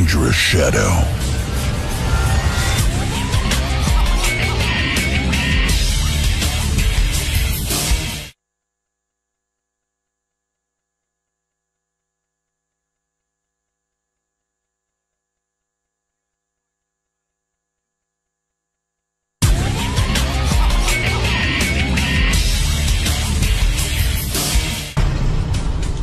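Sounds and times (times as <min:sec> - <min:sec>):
loud music: 0:00.0 - 0:08.3, 0:19.4 - 0:26.0.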